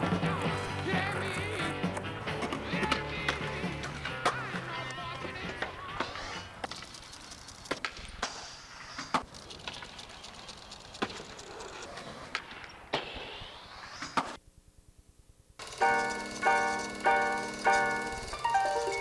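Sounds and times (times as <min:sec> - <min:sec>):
skateboard wheels rolling on concrete: 0:00.0 - 0:14.4, 0:15.6 - 0:19.0
skateboard clacks: 0:01.0 - 0:13.1.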